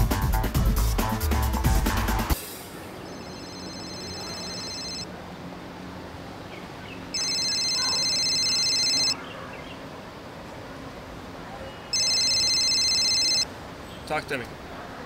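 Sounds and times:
mobile phone ringtone: 3.0 - 5.1, 7.1 - 9.2, 11.9 - 13.5.

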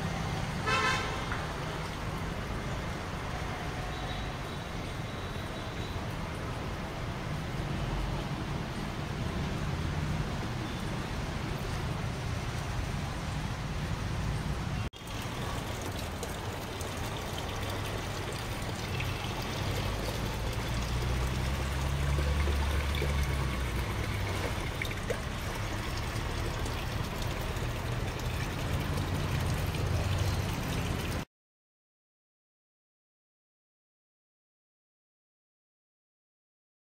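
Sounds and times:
water trickling over soil: 15.0 - 31.2.

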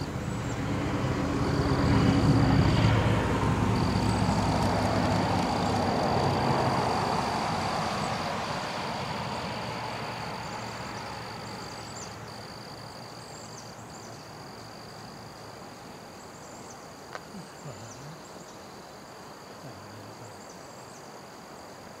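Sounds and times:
car passing: 0.0 - 20.4
high-pitched insect drone: 1.3 - 15.4.

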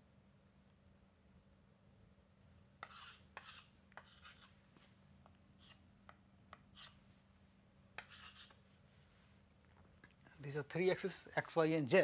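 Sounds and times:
low steady hum: 0.0 - 12.0
chalk tapping and scratching: 2.8 - 4.6, 5.6 - 7.0, 8.0 - 8.6.

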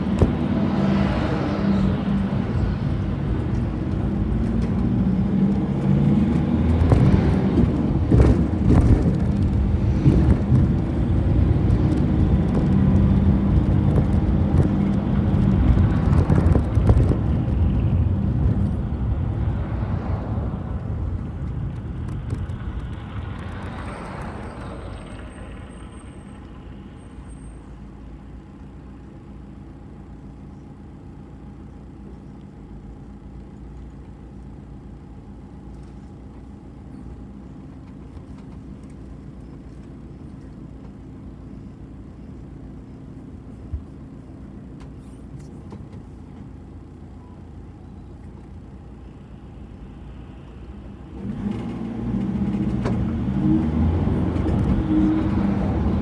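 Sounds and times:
bus engine running: 0.0 - 56.0.

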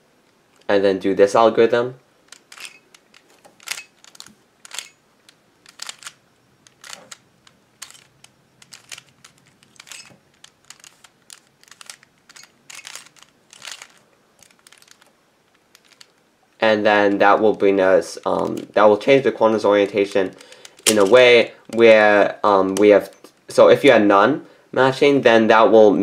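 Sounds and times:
plastic puzzle cube clicking: 2.3 - 16.2, 19.8 - 21.8.

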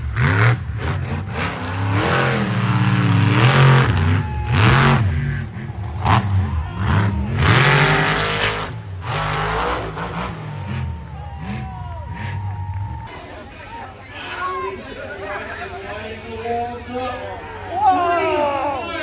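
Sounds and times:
truck engine revving hard: 0.0 - 13.1.

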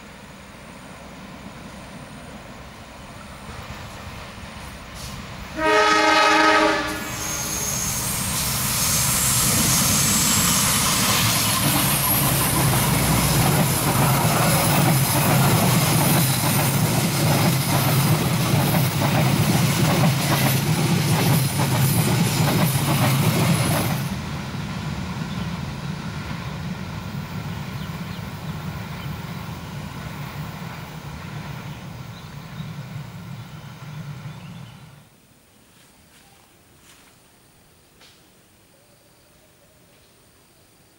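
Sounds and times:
train passing rumble: 0.0 - 35.2
locomotive horn blast: 5.5 - 7.8.

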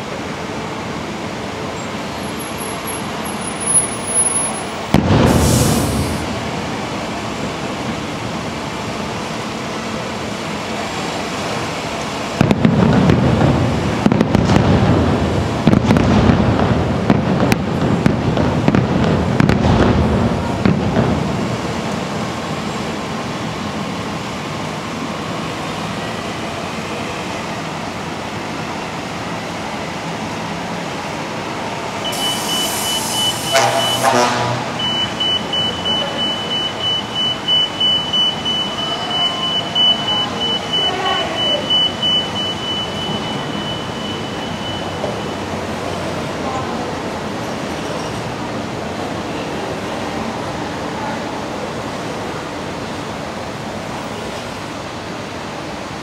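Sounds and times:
fireworks booms and crackles: 4.0 - 9.4, 11.9 - 24.5.

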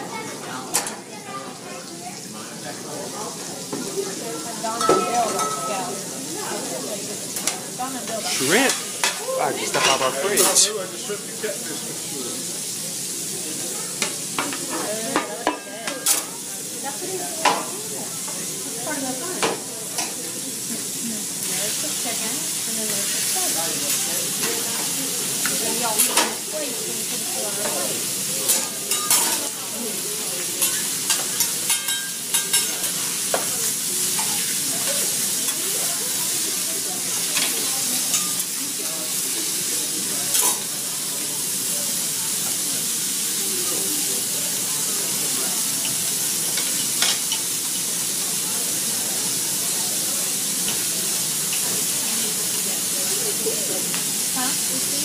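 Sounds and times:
food sizzling on a griddle: 0.0 - 55.0
metal spatula clacking on a griddle: 25.4 - 26.4, 28.5 - 29.4, 30.6 - 33.5, 37.4 - 38.5, 46.5 - 47.5
metal spatula clinking: 30.6 - 32.8.

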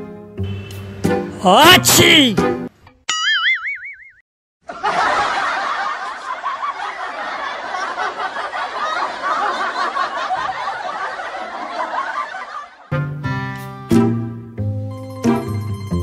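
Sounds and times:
crowd laughing: 4.6 - 12.9.

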